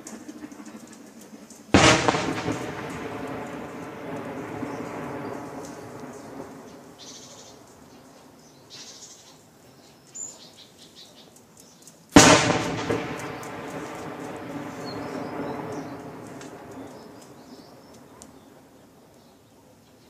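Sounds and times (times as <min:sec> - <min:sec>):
rolling rumble: 0:00.0 - 0:08.3, 0:12.1 - 0:18.6
heavy weapon blast: 0:01.8 - 0:06.3, 0:12.2 - 0:17.5
faint bird chirps: 0:04.4 - 0:11.9.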